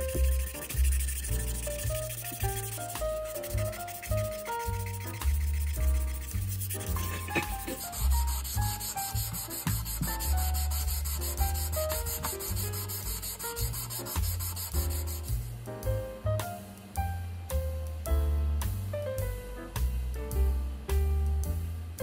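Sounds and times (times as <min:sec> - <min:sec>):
sanding strokes rubbing: 0:00.0 - 0:15.4
background music with bass and piano: 0:00.0 - 0:22.0.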